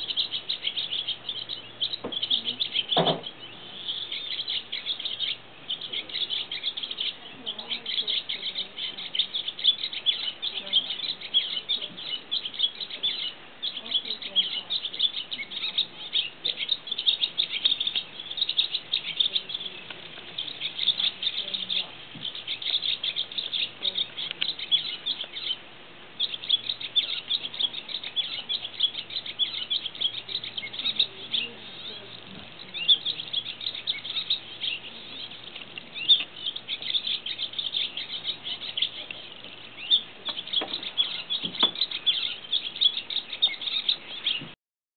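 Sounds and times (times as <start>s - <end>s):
swallow twittering: 0.0s - 44.6s.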